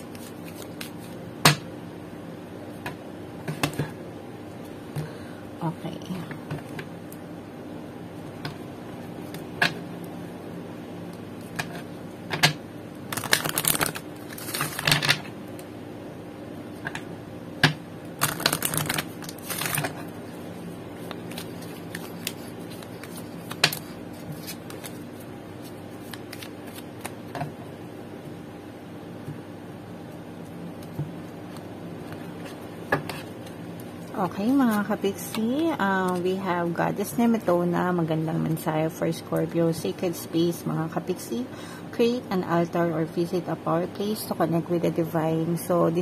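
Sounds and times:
cards rustling while shuffled: 0.0s - 1.2s, 13.1s - 15.1s, 18.2s - 20.1s, 20.9s - 27.2s
faint steady hum: 0.0s - 46.0s.

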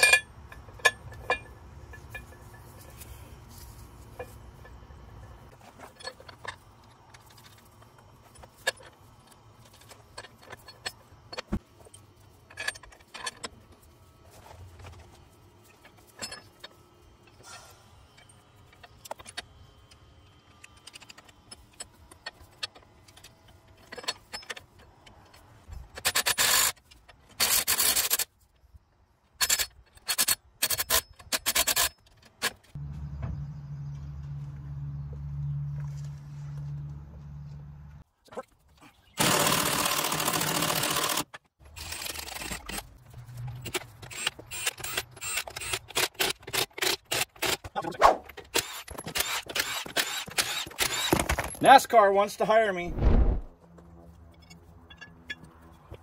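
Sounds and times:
metal clinks and scrapes: 0.0s - 19.5s, 20.7s - 28.5s, 54.0s - 56.0s
power tool tightening nuts: 39.2s - 42.9s, 43.6s - 47.8s, 48.5s - 51.6s.

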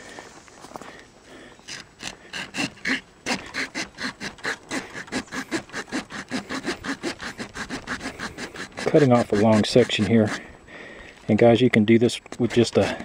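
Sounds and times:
saw blade rasping through branch: 1.6s - 10.5s, 12.4s - 13.0s.

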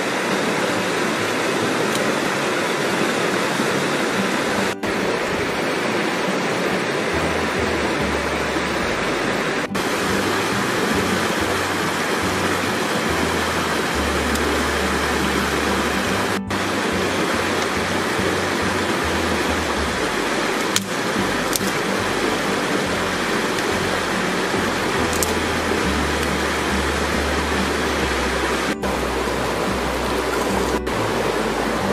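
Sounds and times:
river rushing over rocks: 0.0s - 31.9s.

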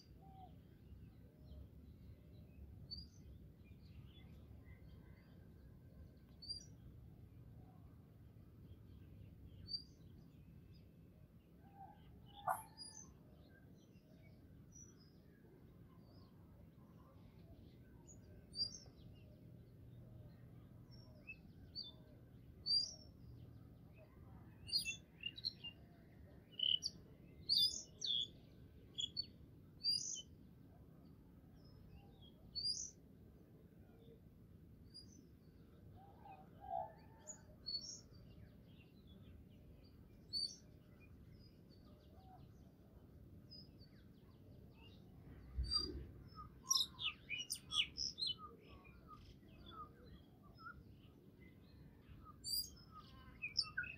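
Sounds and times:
birds chirping: 12.3s - 13.0s.

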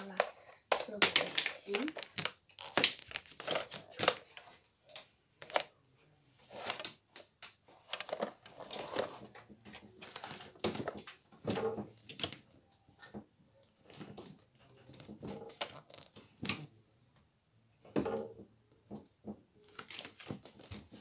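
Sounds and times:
clothing rustling: 6.3s - 13.2s.

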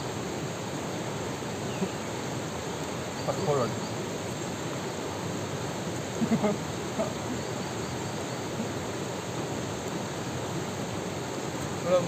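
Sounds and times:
river flowing over rocks: 0.0s - 12.0s.

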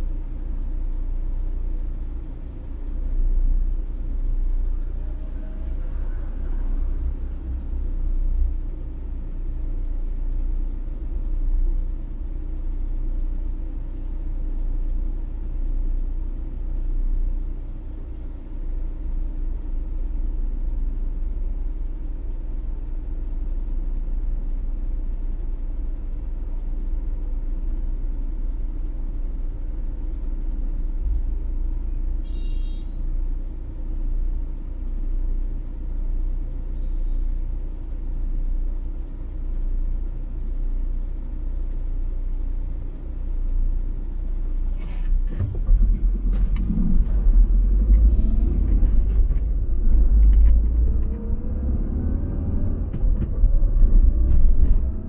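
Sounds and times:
car driving rumble: 0.0s - 55.0s.

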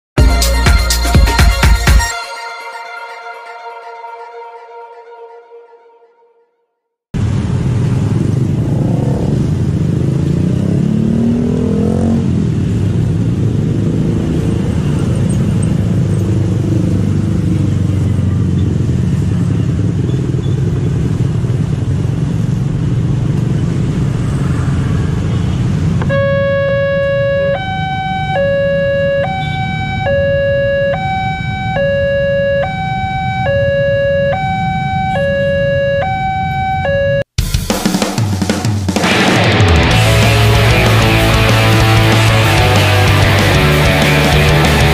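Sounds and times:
motorcycles accelerating past: 7.8s - 26.1s
two-tone crossing warning alarm: 26.0s - 37.3s.

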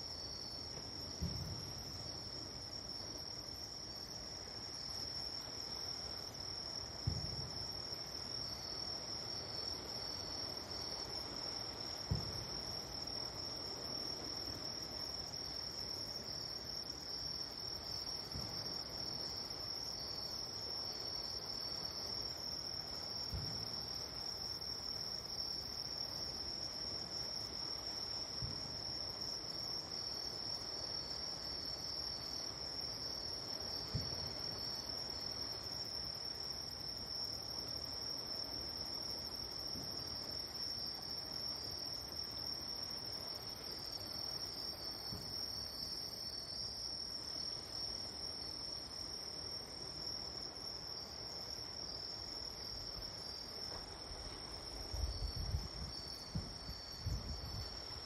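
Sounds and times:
crickets chirping: 0.0s - 58.0s
distant fireworks thumps: 1.2s - 1.7s, 7.0s - 7.6s, 12.0s - 12.5s, 23.3s - 23.7s, 45.1s - 45.3s, 56.3s - 56.6s.

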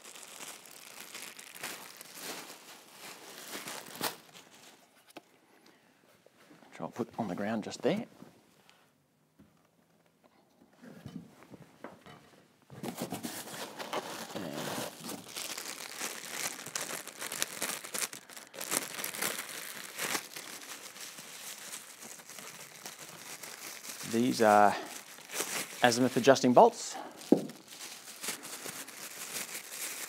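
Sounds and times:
plastic bag crinkling: 0.0s - 5.0s, 12.9s - 30.0s.

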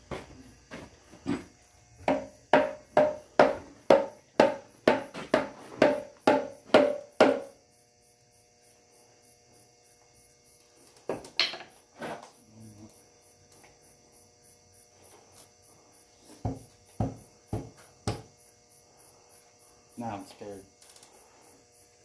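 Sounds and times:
hammer striking metal pry tool: 2.1s - 7.5s.

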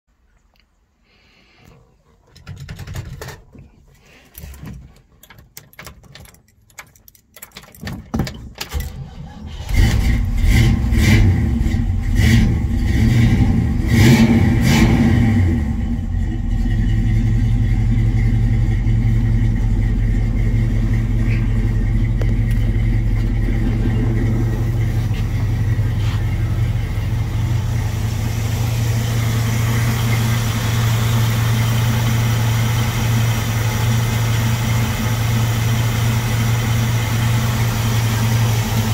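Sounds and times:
car engine starting and revving: 8.7s - 38.9s
car engine idling: 8.9s - 38.9s.

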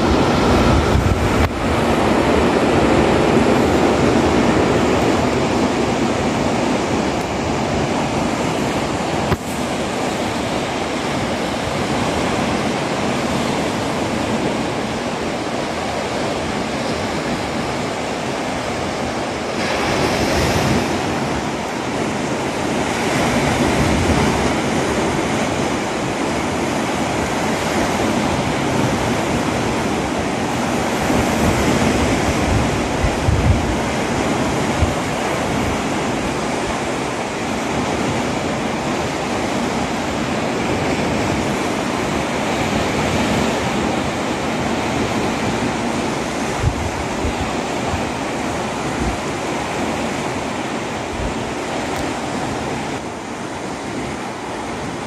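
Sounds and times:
wind bumps on microphone: 0.0s - 14.8s, 27.2s - 38.5s, 39.6s - 53.0s
sea washing over rocks: 0.0s - 55.0s.

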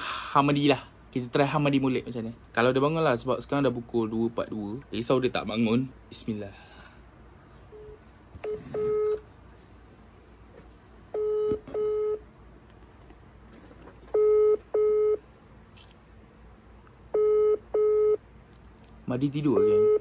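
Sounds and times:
phone ringback tone: 7.8s - 9.2s, 11.2s - 12.2s, 14.2s - 15.2s.

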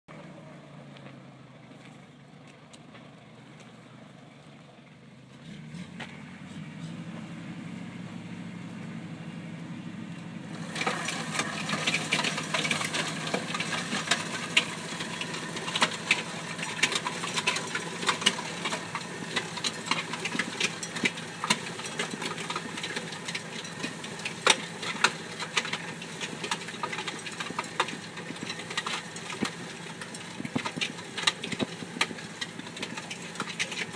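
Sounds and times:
engine running: 0.0s - 33.9s
dense rattling with sharp clicks: 10.6s - 33.9s.

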